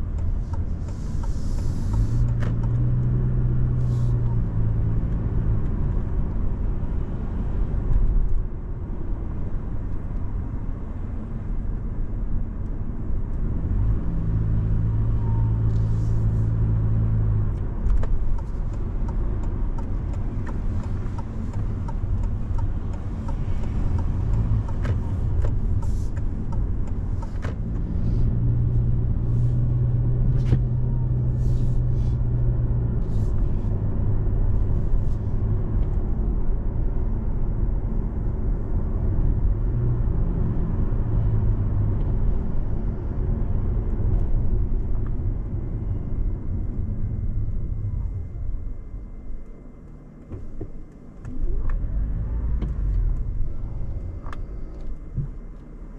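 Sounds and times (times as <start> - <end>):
car engine and road rumble: 0.0 - 55.9
deep hum: 18.8 - 55.9.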